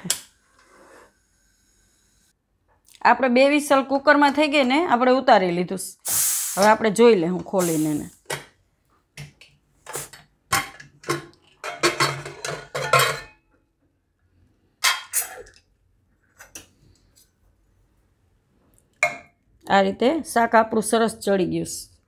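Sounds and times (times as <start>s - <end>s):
metal lid clinks and clanks: 11.6s - 13.4s.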